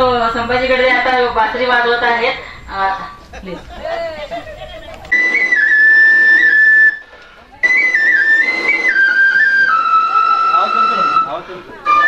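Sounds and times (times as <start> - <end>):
flute playing slow melody: 5.1 - 12.0.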